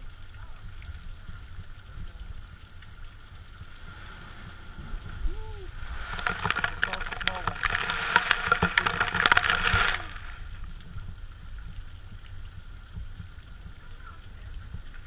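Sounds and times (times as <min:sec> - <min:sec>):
low rumble of sea and wind: 0:00.0 - 0:07.6
sea spray splashing down: 0:03.7 - 0:10.7.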